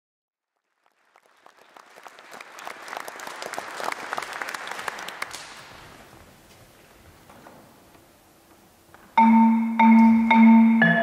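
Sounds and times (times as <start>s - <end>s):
audience applauding: 0.5s - 6.1s.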